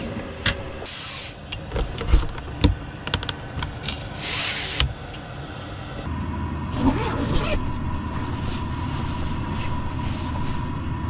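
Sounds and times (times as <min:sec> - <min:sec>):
steady hum: 0:00.0 - 0:11.0
window sliding rasp: 0:03.8 - 0:04.9.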